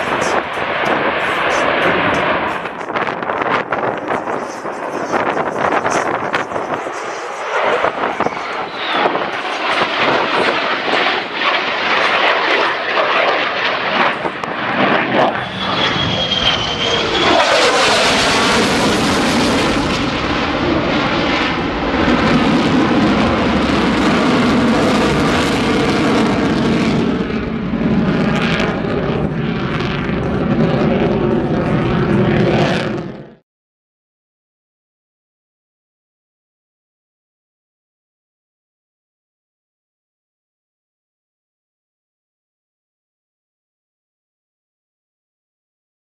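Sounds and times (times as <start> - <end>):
jet flying overhead: 0.0 - 33.4.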